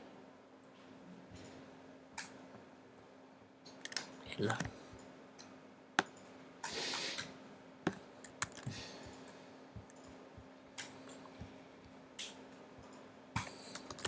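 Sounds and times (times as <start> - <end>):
faint steady hum: 0.0 - 14.0
computer keyboard clicks: 3.7 - 6.3, 7.9 - 9.2, 12.2 - 14.0.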